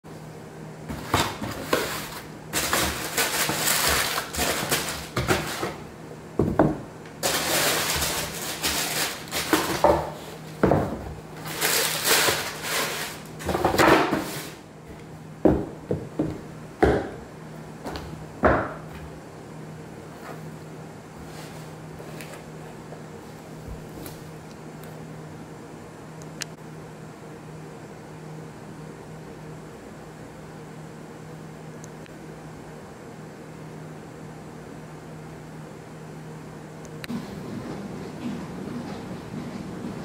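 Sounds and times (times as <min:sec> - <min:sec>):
cardboard box and tissue paper rustling: 0:00.9 - 0:05.8, 0:07.2 - 0:10.6, 0:11.4 - 0:14.6.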